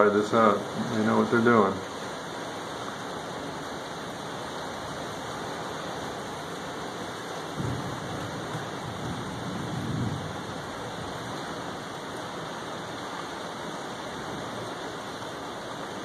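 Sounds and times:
heavy rain: 0.0s - 16.0s
thunder rumbling: 7.4s - 11.8s.

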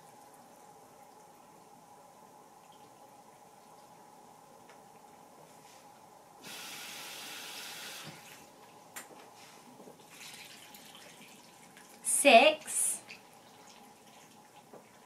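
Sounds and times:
faucet filling cup with water: 6.4s - 8.5s, 10.0s - 12.1s
water pouring: 10.0s - 12.1s, 13.0s - 15.0s.

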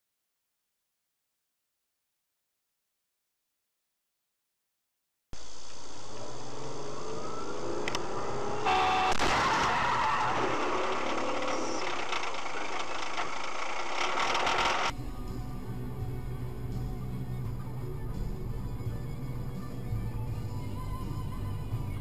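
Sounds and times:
rush of noise: 5.4s - 14.9s
car engine and road noise: 5.5s - 22.0s
short pitched tone: 8.4s - 9.5s.

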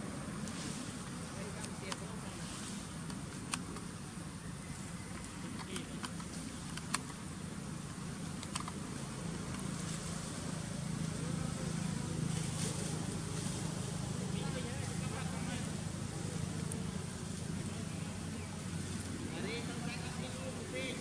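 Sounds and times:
sharp clicks: 5.2s - 7.2s, 8.3s - 8.8s.

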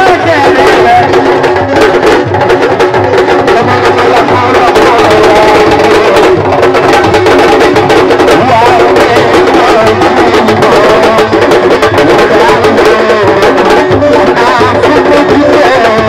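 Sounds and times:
fast drum rhythm: 0.0s - 16.0s.

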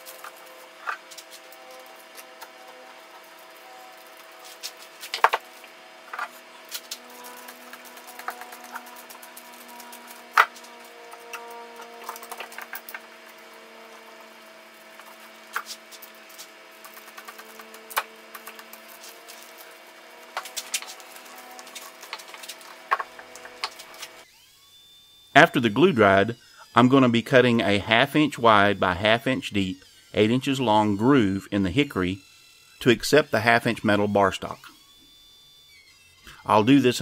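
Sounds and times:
clamps clicking and clacking: 0.0s - 14.3s
steady low hum: 0.0s - 24.3s.

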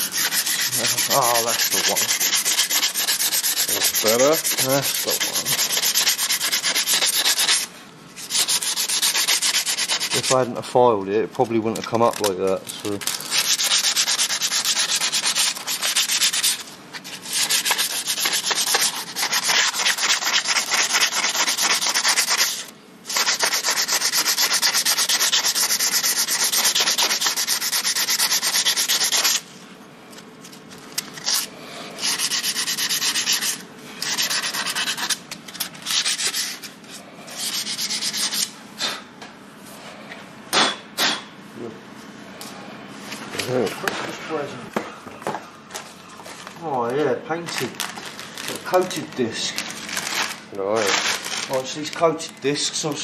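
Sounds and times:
sandpaper rubbing on metal: 0.0s - 10.5s, 12.1s - 29.5s, 31.2s - 38.5s.

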